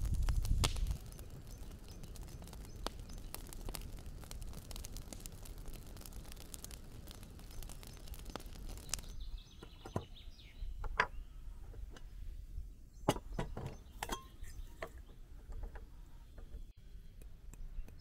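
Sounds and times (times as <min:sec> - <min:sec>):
teapot and glass clinks: 0:14.0 - 0:14.4.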